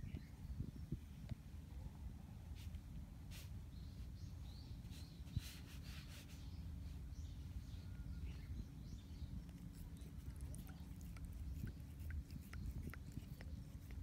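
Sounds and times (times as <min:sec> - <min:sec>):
low steady rumble: 0:06.5 - 0:14.0.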